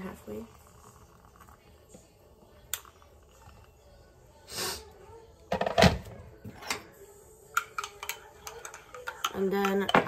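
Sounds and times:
kettle and mug knocks and clatter: 8.6s - 10.0s.

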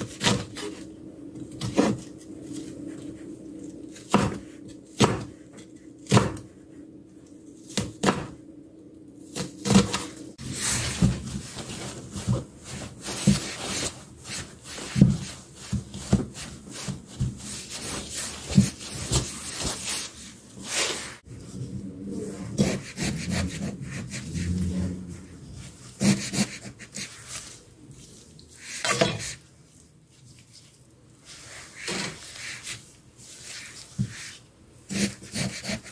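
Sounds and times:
knife cutting cucumber: 0.0s - 0.9s, 25.8s - 27.4s, 34.0s - 35.9s
knife chopping on wooden board: 4.1s - 4.4s, 5.0s - 5.3s, 6.0s - 6.4s.

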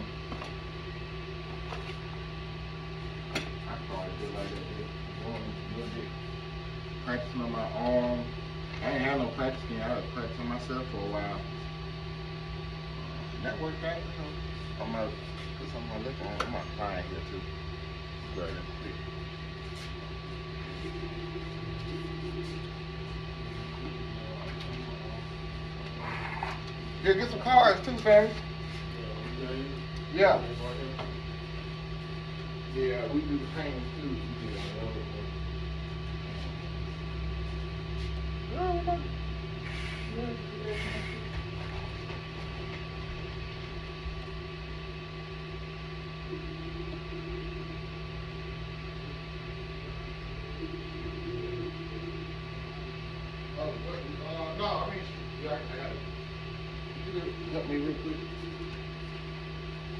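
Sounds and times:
low electrical hum: 0.0s - 59.9s.

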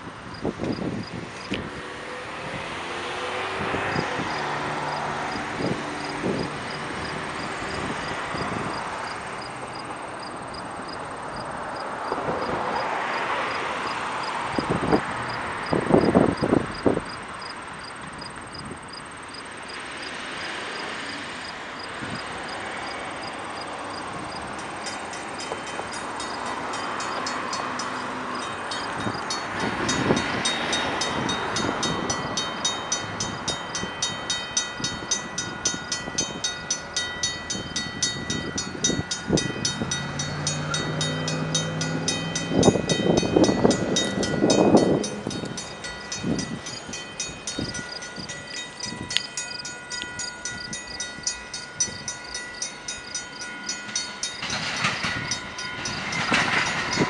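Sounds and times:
crossing warning bell ringing: 0.0s - 12.1s, 12.7s - 57.0s
road traffic passing: 0.0s - 57.0s.

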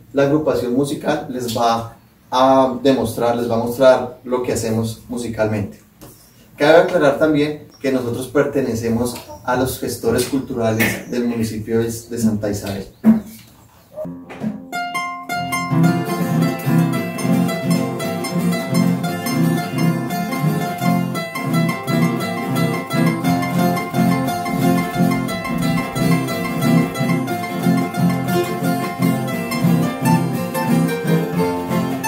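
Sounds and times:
plucked string notes: 14.0s - 32.0s
picked string melody: 14.1s - 32.0s
strummed string rhythm: 14.1s - 32.0s.

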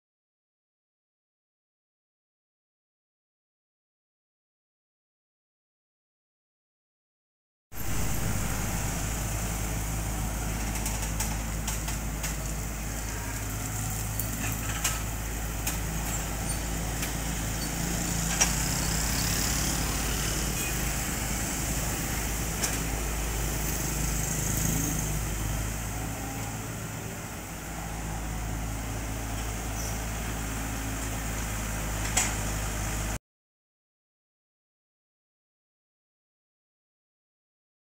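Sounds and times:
excavator diesel engine running: 7.8s - 33.2s.

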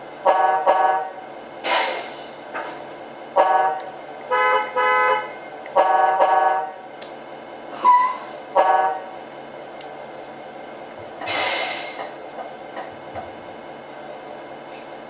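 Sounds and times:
simulated truck horn blasts: 0.2s - 1.2s, 3.3s - 6.8s, 7.8s - 9.1s.

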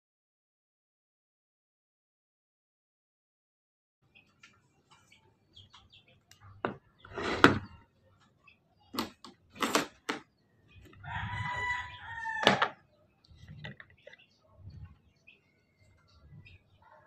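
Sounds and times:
plastic bowl and lid clattering: 6.7s - 7.8s
rooster crowing: 11.0s - 12.8s.

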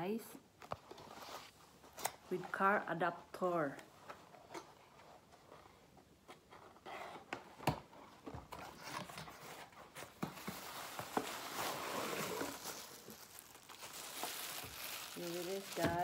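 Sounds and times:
packaging rustling: 8.2s - 16.0s
cardboard flaps scraping: 8.5s - 13.2s.

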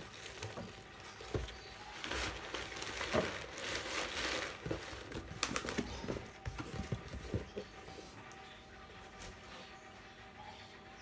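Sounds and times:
plastic bag crinkling: 0.0s - 6.9s
cardboard box rustling: 0.0s - 8.0s.

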